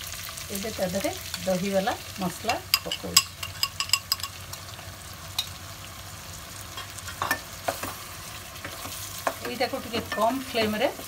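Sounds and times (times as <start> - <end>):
food sizzling in a pan: 0.0 - 11.0
spoon clicking against pan: 2.5 - 4.6.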